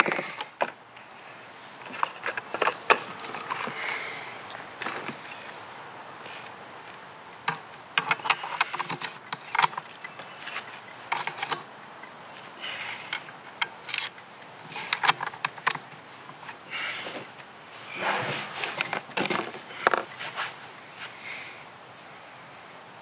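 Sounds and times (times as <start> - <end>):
rifle bolt clicks and clacks: 6.4 - 12.2, 13.1 - 16.0.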